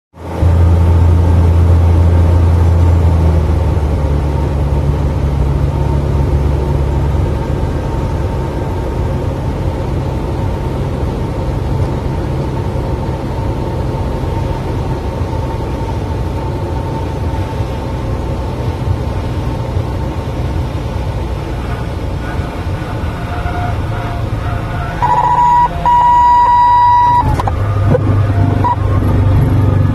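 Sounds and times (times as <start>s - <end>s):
plane engine and propeller drone: 0.2s - 29.9s
stall warning horn: 21.6s - 29.2s.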